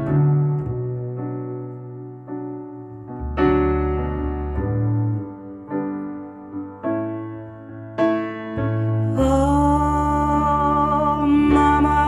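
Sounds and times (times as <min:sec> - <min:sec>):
slow piano chords: 0:00.0 - 0:12.0
deep bass note: 0:02.8 - 0:05.9.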